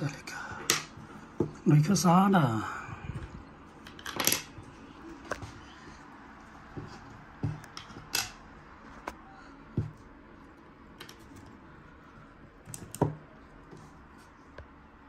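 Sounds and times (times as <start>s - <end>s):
devices clicking and knocking on desk: 0.6s - 1.6s, 6.7s - 8.4s, 12.7s - 13.9s.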